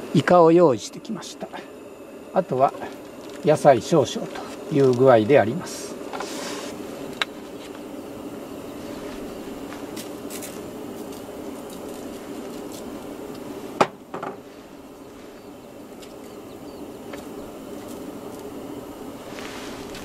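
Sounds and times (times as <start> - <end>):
plastic bottle set down on table: 13.8 - 14.4.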